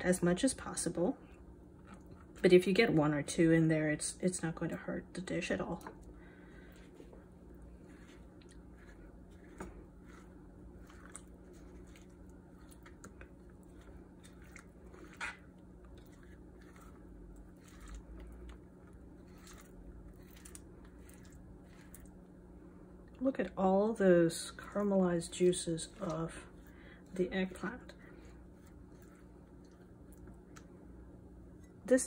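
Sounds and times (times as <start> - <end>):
knife scraping on cutting board: 7.8 - 12.1, 13.8 - 18.0.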